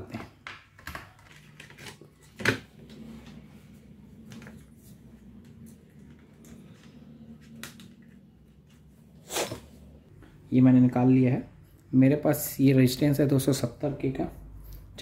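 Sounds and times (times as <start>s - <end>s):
short scrape: 9.2s - 9.8s.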